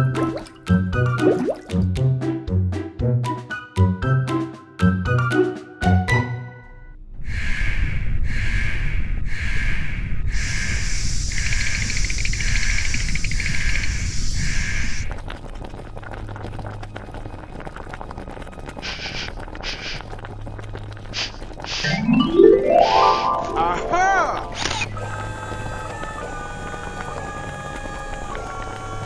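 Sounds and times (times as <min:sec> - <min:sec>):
steam hissing puffs: 0:10.3 - 0:15.1, 0:18.8 - 0:20.1, 0:21.1 - 0:22.0
continuous high steam hiss: 0:10.4 - 0:15.1, 0:18.8 - 0:20.0.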